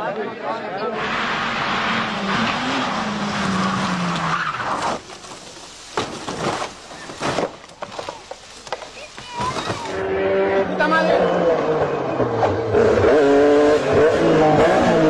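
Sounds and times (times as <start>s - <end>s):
tyres skidding: 0.9s - 15.0s
heavy knocks of car rolling over: 3.2s - 10.0s
rally car engine running hard: 9.9s - 15.0s.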